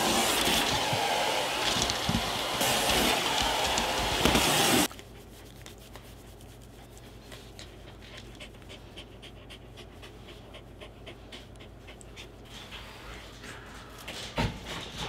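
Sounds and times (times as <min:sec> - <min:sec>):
vacuum cleaner running: 0:00.0 - 0:04.9
dog panting: 0:04.9 - 0:13.0.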